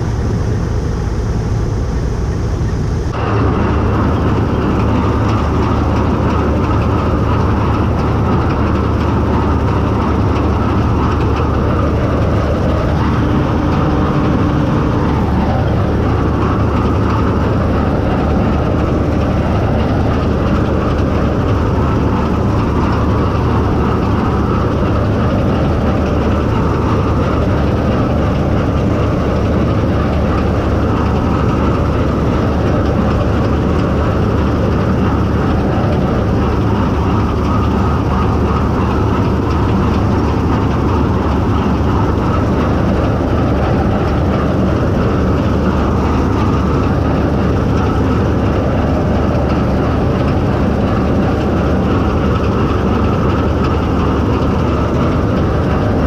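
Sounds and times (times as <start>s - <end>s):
combine harvester drone: 0.0s - 56.0s.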